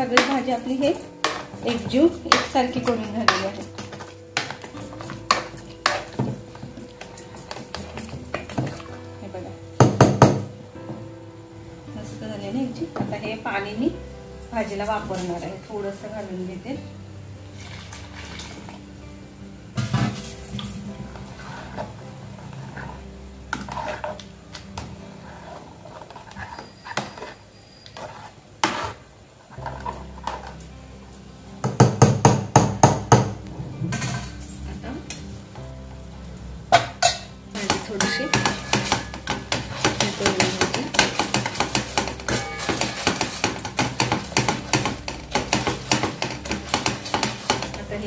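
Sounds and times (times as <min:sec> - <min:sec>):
metal knocking on pot: 0:00.0 - 0:08.9, 0:09.8 - 0:11.0, 0:31.6 - 0:34.3, 0:36.7 - 0:48.0
masher squelching potatoes: 0:37.6 - 0:48.0.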